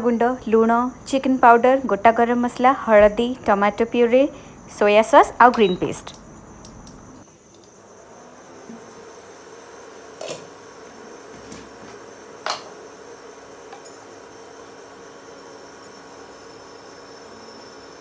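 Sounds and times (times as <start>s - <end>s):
induction cooktop humming: 0.0s - 18.0s
glass lid clinking: 12.4s - 12.8s.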